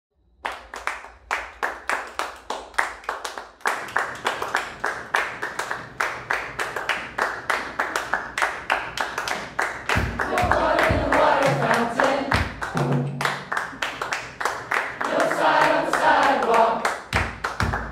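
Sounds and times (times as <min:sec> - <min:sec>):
group clapping in rhythm: 0:00.4 - 0:17.9.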